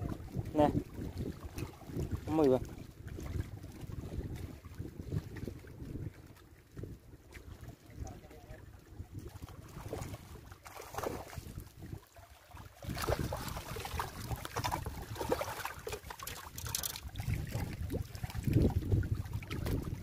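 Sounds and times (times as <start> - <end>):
water lapping on rocks: 0.0 - 20.0
wind on microphone: 0.0 - 20.0
fish thrashing in water: 9.2 - 20.0.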